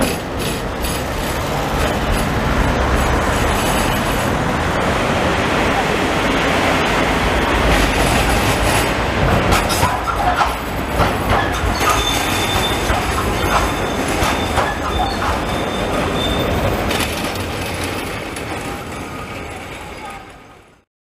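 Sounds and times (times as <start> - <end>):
tram passing: 0.0 - 20.8
sharp clacks: 7.6 - 18.8
high wheel squeal: 9.7 - 17.4.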